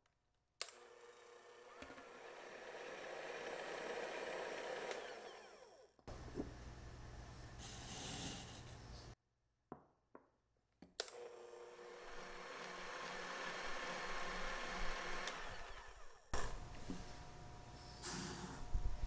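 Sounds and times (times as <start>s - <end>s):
electric hand mixer whipping: 0.8s - 6.1s, 11.2s - 17.7s.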